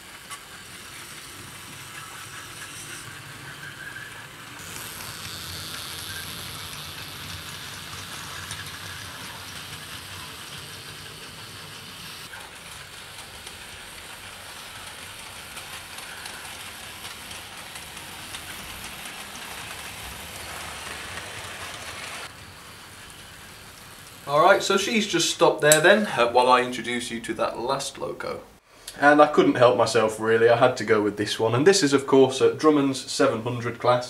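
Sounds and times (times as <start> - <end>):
model train motor whirring: 0.0 - 25.9
wheels rolling on track: 0.0 - 28.2.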